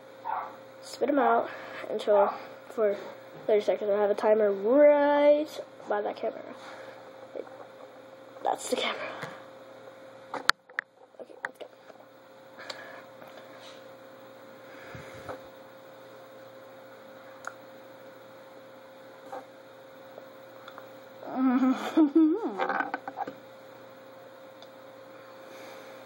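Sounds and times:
electrical hum with hiss: 0.0s - 26.0s.

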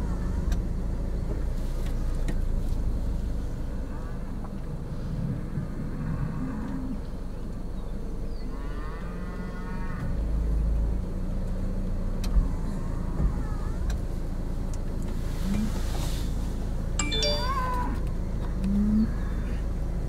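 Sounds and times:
steady low rumble: 0.0s - 8.3s.

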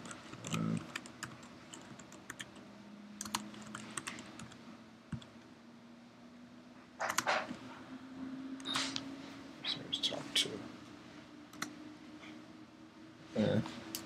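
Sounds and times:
computer keyboard typing: 0.0s - 2.6s, 3.2s - 5.3s, 7.0s - 7.5s.

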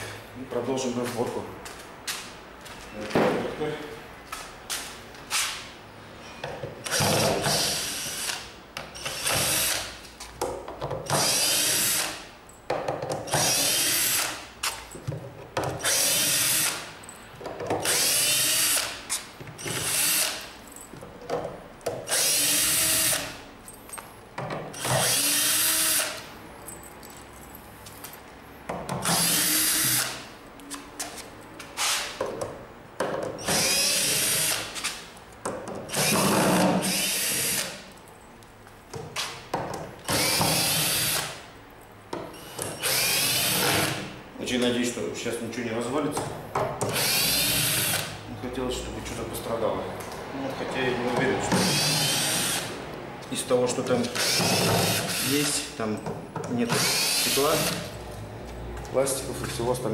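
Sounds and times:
cordless drill motor runs: 24.8s - 26.2s, 33.4s - 34.6s, 35.9s - 37.7s, 42.4s - 44.0s, 46.9s - 48.1s, 51.6s - 52.7s, 54.2s - 55.6s, 56.8s - 57.9s.

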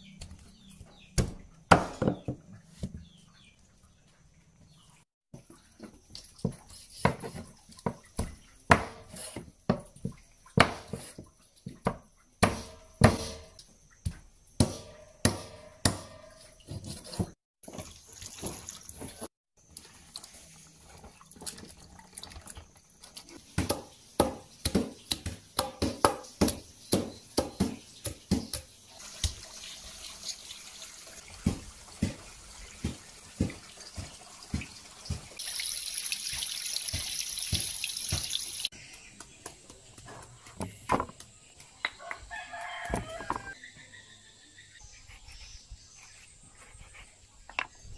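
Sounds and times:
water sloshing and dripping: 16.4s - 23.6s, 28.8s - 38.7s
running water hiss: 27.9s - 38.8s.

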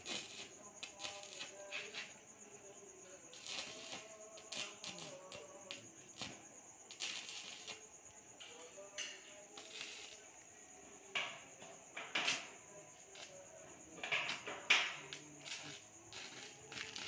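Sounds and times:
welding arc crackling: 0.0s - 1.5s, 3.3s - 5.2s, 6.9s - 7.8s, 9.6s - 10.2s, 15.4s - 17.0s.

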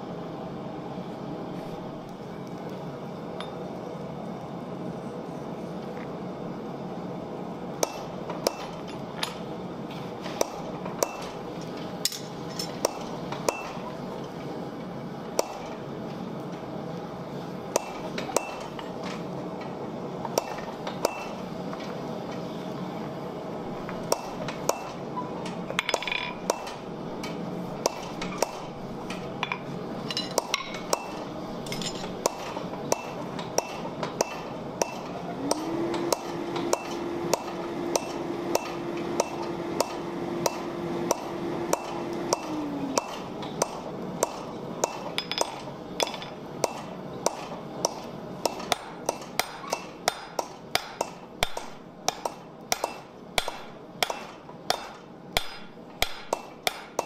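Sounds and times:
steady low hum: 0.0s - 57.0s
hammer striking iron on anvil: 7.8s - 9.4s, 10.4s - 11.4s, 12.0s - 13.9s, 15.4s - 15.8s, 17.7s - 19.0s, 20.3s - 21.4s, 23.9s - 25.0s, 25.7s - 57.0s.

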